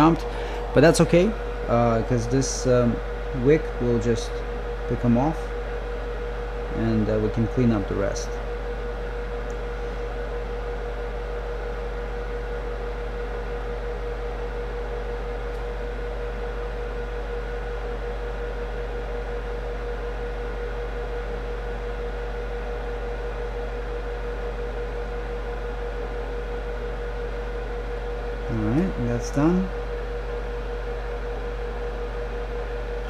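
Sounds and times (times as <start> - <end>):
constant mid-pitched tone: 0.0 - 10.4
steady background hum and hiss: 0.0 - 33.0.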